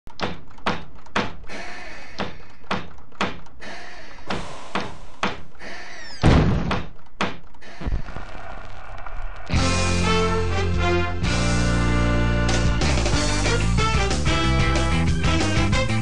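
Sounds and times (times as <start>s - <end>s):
small hammers knocking on wood: 0.1s - 1.4s, 2.2s - 3.6s, 6.6s - 7.6s
heavy thud: 6.2s - 8.5s.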